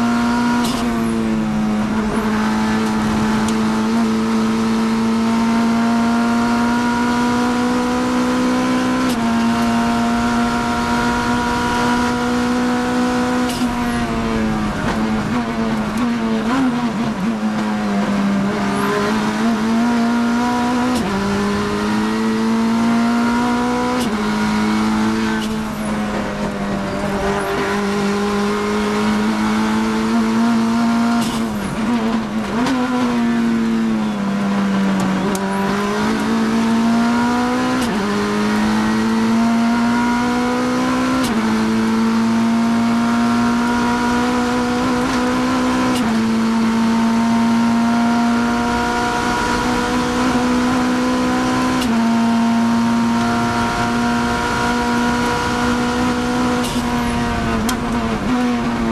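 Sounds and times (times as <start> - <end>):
race car engine: 0.0 - 58.9.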